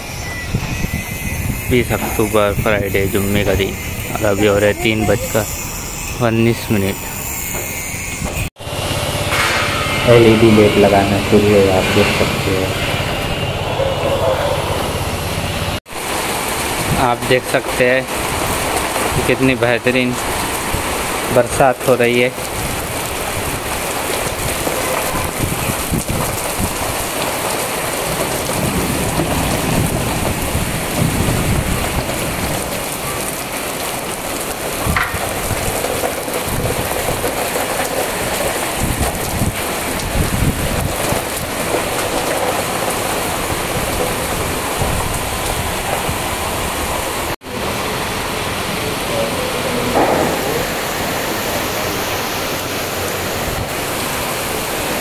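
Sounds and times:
low rumbles: 0:01.4 - 0:19.3, 0:28.4 - 0:54.0
rain pattering on ground: 0:15.9 - 0:55.0.

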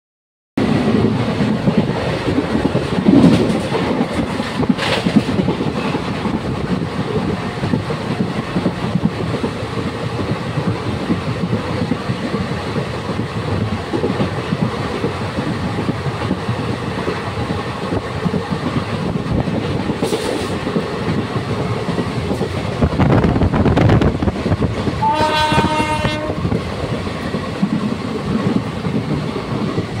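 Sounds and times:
train clanks: 0:00.6 - 0:30.0
train wheels rumbling on rails: 0:00.6 - 0:30.0
train horn: 0:25.0 - 0:26.5.

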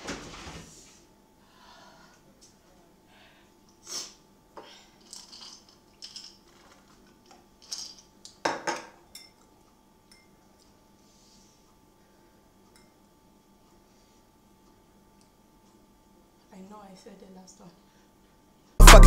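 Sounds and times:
ice clinking in glass jar: 0:05.0 - 0:06.9, 0:07.6 - 0:08.0.

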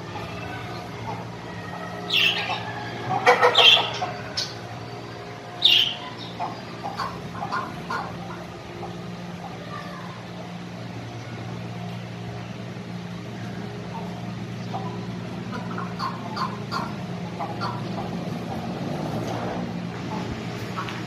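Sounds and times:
birds squawking: 0:00.1 - 0:09.9, 0:13.2 - 0:18.2.

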